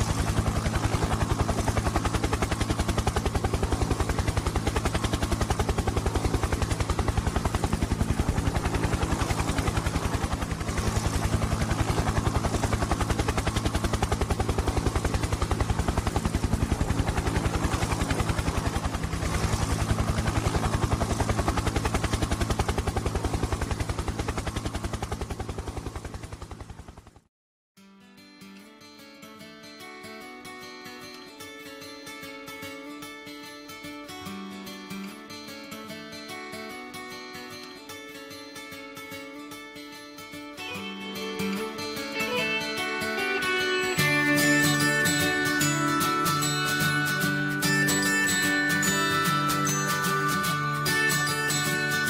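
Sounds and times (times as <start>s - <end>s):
helicopter rotor chop: 0.0s - 27.3s, 40.6s - 52.0s.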